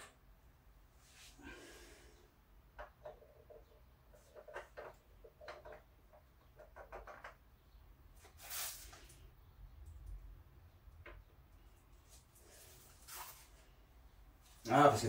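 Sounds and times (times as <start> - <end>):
short rustle: 12.0 - 13.8.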